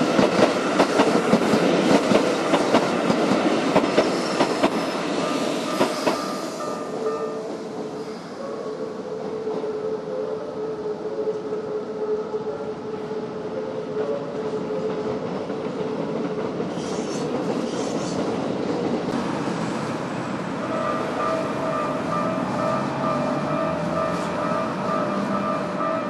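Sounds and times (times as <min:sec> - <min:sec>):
train wheels rumbling on rails: 0:00.0 - 0:08.4, 0:13.9 - 0:26.0
crossing warning bell ringing: 0:05.2 - 0:07.6, 0:20.6 - 0:26.0.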